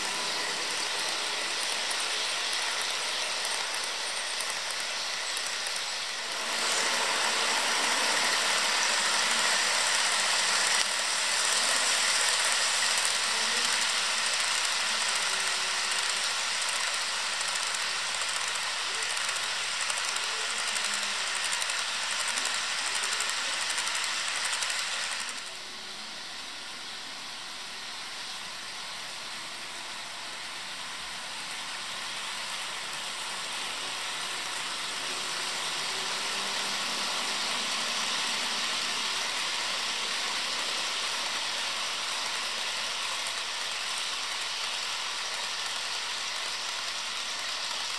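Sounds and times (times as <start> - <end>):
model trains rattling on track: 0.0 - 47.9.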